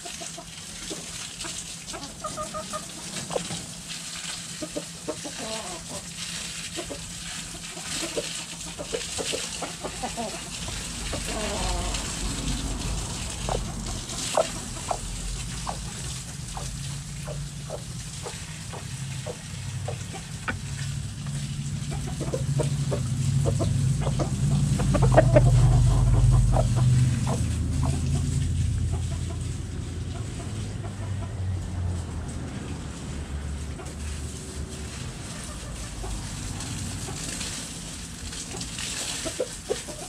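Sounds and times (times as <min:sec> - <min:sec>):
hens clucking: 0:00.0 - 0:31.6, 0:35.2 - 0:37.4, 0:38.5 - 0:40.0
low rumble: 0:10.7 - 0:32.3.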